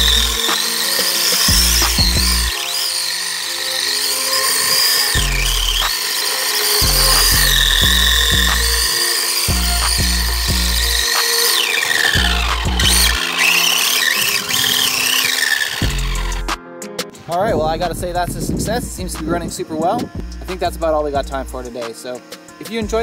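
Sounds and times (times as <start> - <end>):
music with heavy bass beat: 0.0 - 2.6, 5.2 - 6.0, 6.8 - 11.4, 12.1 - 13.2, 15.8 - 16.6, 17.5 - 21.8, 22.4 - 23.0
electric motor whine: 0.0 - 16.6.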